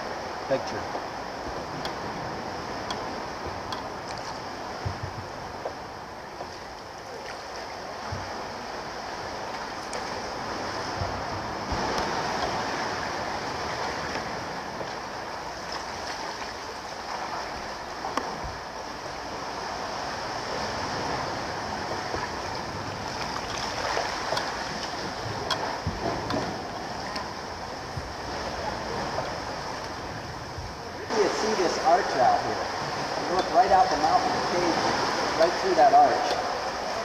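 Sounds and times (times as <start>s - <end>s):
sea water rushing and sloshing: 0.0s - 37.0s
small splashes: 23.0s - 25.8s.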